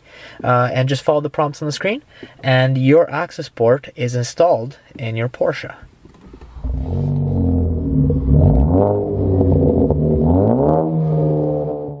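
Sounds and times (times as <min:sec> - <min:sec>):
car engine revving: 0:06.4 - 0:12.0.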